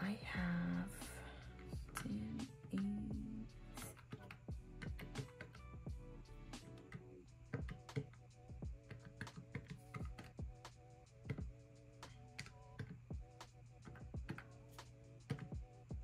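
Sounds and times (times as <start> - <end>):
calculator keys tapping: 3.9 - 5.6, 6.6 - 10.5, 11.3 - 13.0, 13.8 - 14.5, 15.3 - 15.7.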